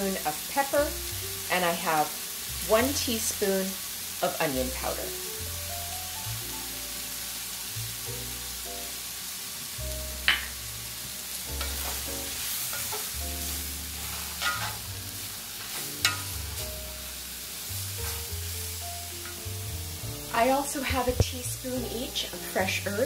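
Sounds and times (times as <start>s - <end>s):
background music: 0.0s - 23.0s
mushrooms sizzling in a pan: 0.0s - 23.0s
spatula clacking on a pan: 10.2s - 10.6s, 11.6s - 12.1s, 12.7s - 13.2s, 14.4s - 14.8s, 15.7s - 16.4s.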